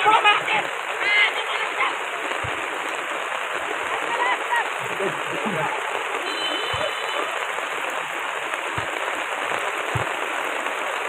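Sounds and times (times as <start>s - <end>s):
heavy rain on wet ground: 0.0s - 11.0s
dull low thumps: 9.9s - 10.3s.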